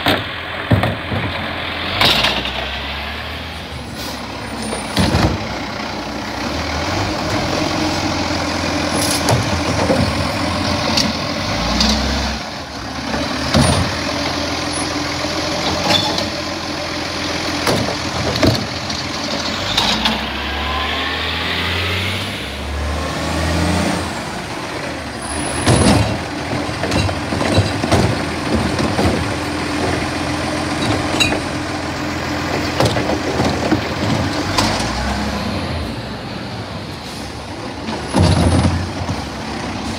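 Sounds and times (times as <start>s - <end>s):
diesel engine revving: 0.0s - 39.9s
bins clunking and rattling: 4.7s - 5.5s, 8.9s - 11.1s, 13.5s - 14.0s, 17.6s - 19.5s, 25.5s - 30.1s, 32.5s - 35.0s, 37.8s - 39.4s.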